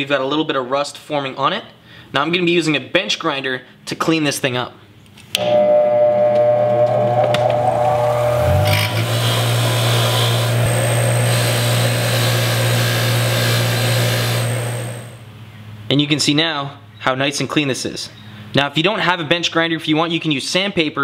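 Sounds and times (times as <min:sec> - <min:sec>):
bench grinder motor whining: 0:06.4 - 0:15.2.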